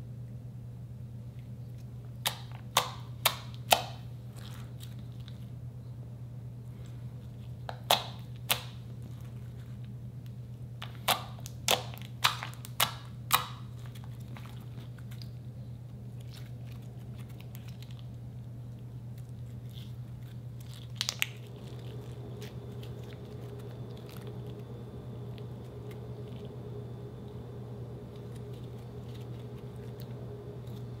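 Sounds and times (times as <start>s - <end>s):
slime clicking and popping: 2.2s - 4.0s, 10.8s - 13.7s.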